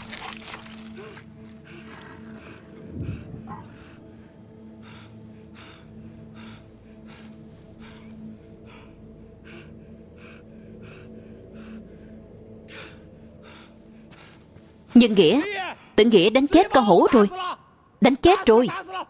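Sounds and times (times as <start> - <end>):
man panting hard: 1.1 - 14.8.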